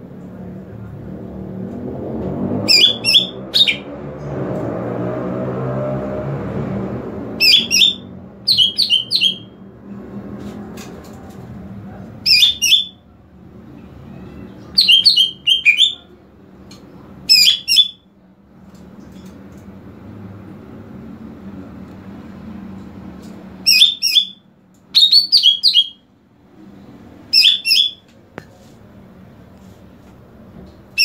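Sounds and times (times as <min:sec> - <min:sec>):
bird calling sharp high notes: 0:02.7 - 0:03.9, 0:07.4 - 0:09.5, 0:12.2 - 0:13.0, 0:14.7 - 0:16.1, 0:23.7 - 0:24.4, 0:25.0 - 0:26.0, 0:27.3 - 0:28.0.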